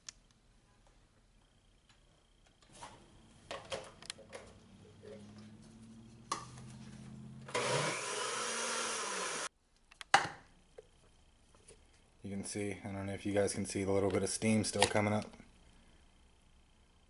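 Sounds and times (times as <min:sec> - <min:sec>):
blender motor running: 0:07.5 - 0:09.5.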